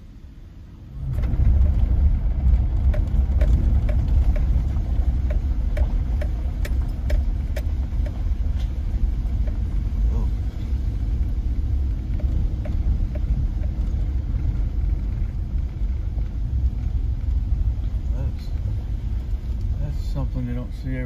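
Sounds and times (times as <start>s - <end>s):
engine and tyre rumble: 0.0s - 21.0s
light ticks: 2.8s - 9.9s, 10.6s - 17.4s, 18.4s - 19.8s.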